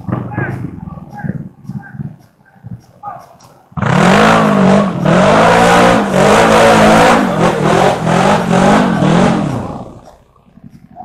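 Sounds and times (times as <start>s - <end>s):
utility vehicle engine revving: 3.7s - 11.0s.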